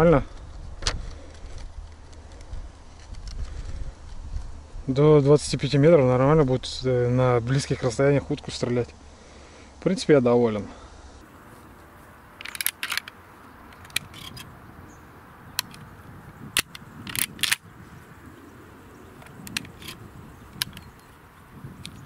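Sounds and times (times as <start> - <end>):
shotgun action clicking: 12.4 - 14.5, 15.6 - 15.9, 16.5 - 17.7, 19.2 - 21.1.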